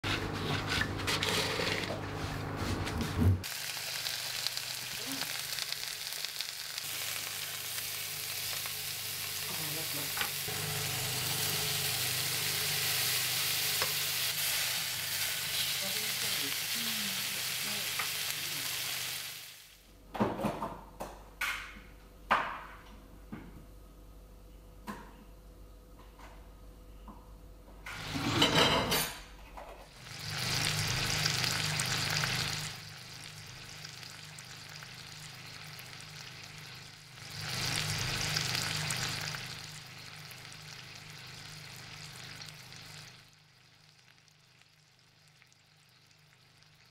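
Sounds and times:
fish sizzling in a frying pan: 3.4 - 19.8, 29.9 - 46.9.

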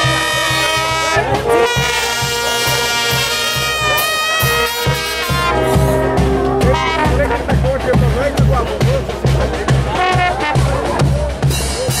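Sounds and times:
trumpets playing tune: 0.0 - 8.2, 9.9 - 10.9
tuba bass beat: 0.0 - 12.0.

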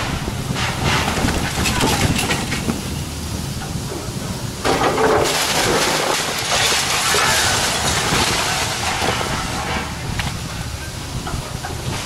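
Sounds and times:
excavator diesel engine running: 0.0 - 12.0
brick wall crashing down: 0.5 - 2.8, 4.6 - 9.9
bricks and debris falling: 0.6 - 2.9, 4.6 - 10.4.

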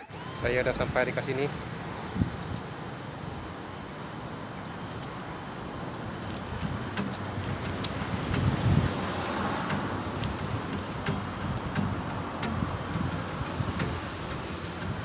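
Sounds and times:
traffic noise: 0.0 - 15.0
car passing: 6.0 - 15.0.

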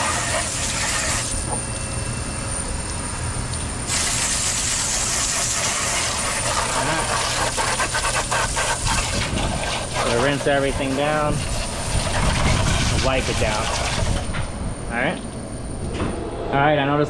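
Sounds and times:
water spraying on plastic panels: 3.9 - 14.2.

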